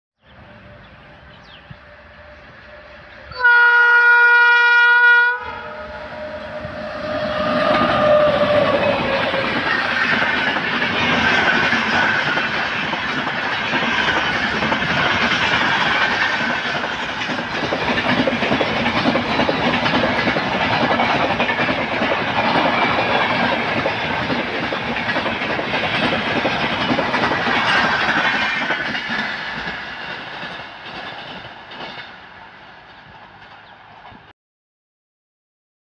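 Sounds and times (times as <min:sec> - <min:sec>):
train wheels roaring on rail: 0:00.2 - 0:34.3
wheels clacking over rail joints: 0:06.6 - 0:34.3.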